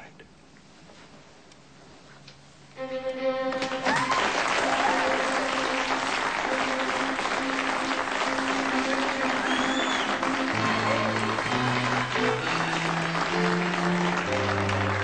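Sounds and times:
music with long held notes: 2.8s - 3.9s, 5.0s - 15.0s
crowd applauding: 3.5s - 15.0s.

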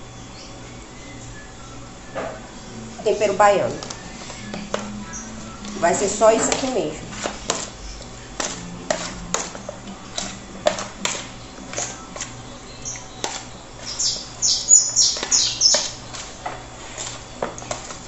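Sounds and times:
high chirps: 4.0s - 6.1s, 11.3s - 16.0s
kitchen utensils tapping and clicking: 6.4s - 7.7s.

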